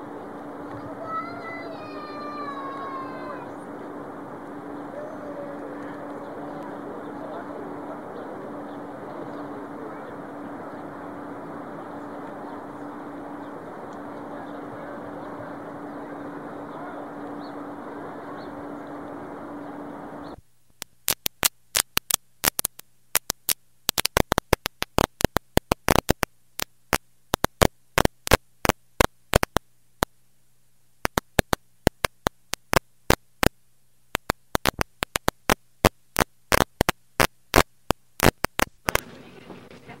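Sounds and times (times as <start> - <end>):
blank videotape hum: 0.0 - 40.0
street background noise: 0.0 - 40.0
tape hiss: 0.0 - 40.0
tape clicks and pops: 20.7 - 30.1, 31.0 - 39.1.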